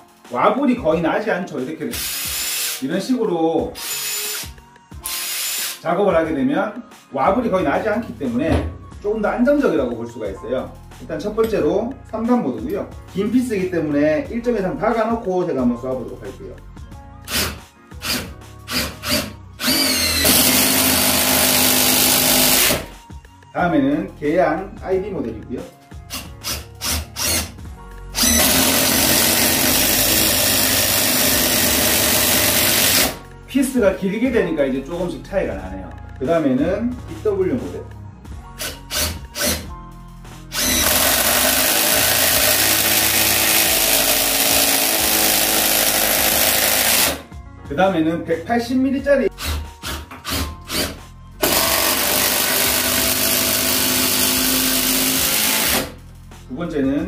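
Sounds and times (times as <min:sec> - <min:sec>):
impact driver trigger bursts: 0:02.0 - 0:02.8, 0:03.8 - 0:05.8, 0:17.3 - 0:22.9, 0:26.1 - 0:27.6, 0:28.2 - 0:33.2, 0:40.6 - 0:47.2, 0:49.4 - 0:55.9
impact driver motor whine: 0:17.3 - 0:22.9, 0:28.2 - 0:33.2, 0:40.6 - 0:47.2, 0:50.3 - 0:55.9.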